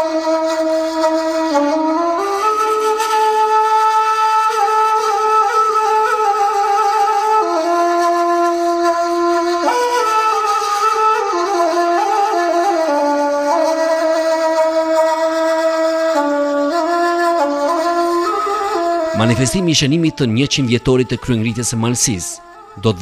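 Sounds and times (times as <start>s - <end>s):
slow woodwind melody: 0.0s - 20.5s.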